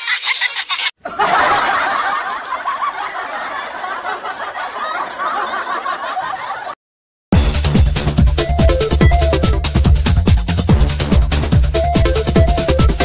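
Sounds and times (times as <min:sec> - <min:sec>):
crowd laughing: 0:00.0 - 0:06.8
electronic dance music: 0:07.4 - 0:13.0.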